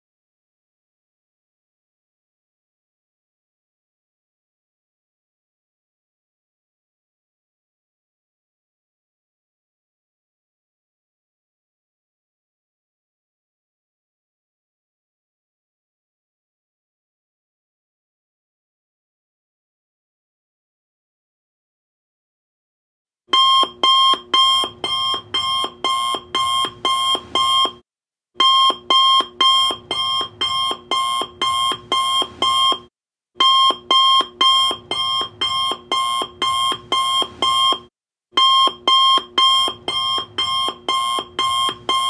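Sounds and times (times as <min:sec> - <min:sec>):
alarm clock beeping: 0:23.4 - 0:27.8, 0:28.4 - 0:42.0.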